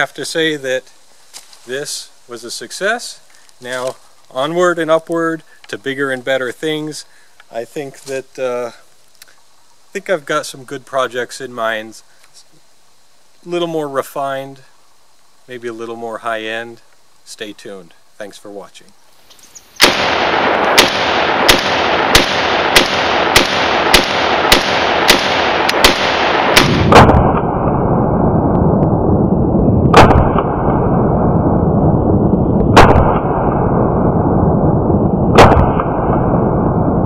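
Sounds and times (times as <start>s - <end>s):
steady rushing noise: 19.6s - 37.0s
rifle shots: 19.8s - 28.2s, 29.9s - 31.0s, 32.7s - 33.7s, 35.3s - 36.7s.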